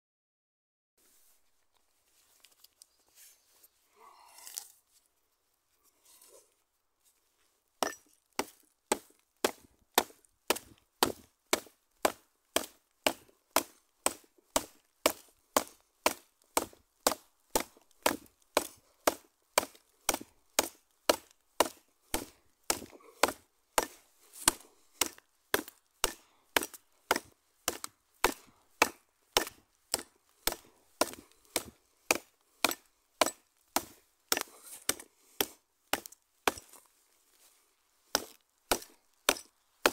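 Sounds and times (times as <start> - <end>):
tomahawk chopping branch: 7.8 - 36.9, 38.1 - 39.9.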